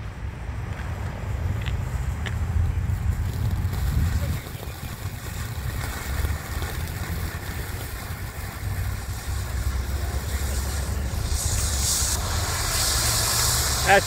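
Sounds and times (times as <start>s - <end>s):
firework fountain hissing: 1.2s - 14.0s.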